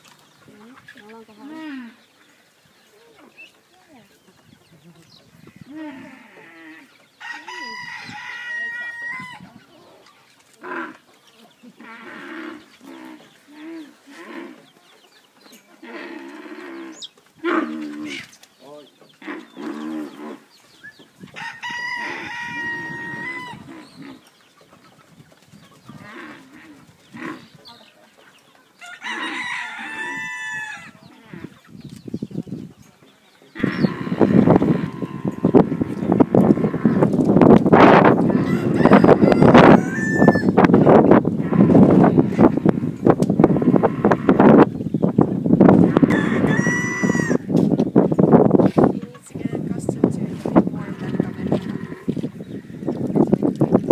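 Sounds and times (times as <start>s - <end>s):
rooster crowing: 7.2s - 9.5s, 21.4s - 23.7s, 28.8s - 31.0s, 38.3s - 40.6s, 45.9s - 47.5s.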